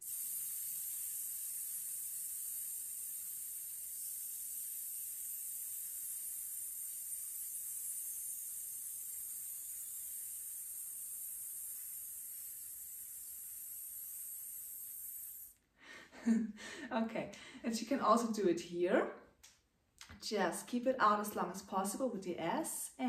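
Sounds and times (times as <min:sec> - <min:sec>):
woman hissing through teeth: 0:00.0 - 0:15.6.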